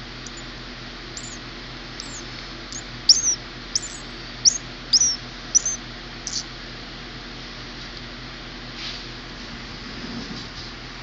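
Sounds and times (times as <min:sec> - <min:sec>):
nestling bird cheeping: 0:00.0 - 0:00.5, 0:01.2 - 0:01.4, 0:02.0 - 0:06.5.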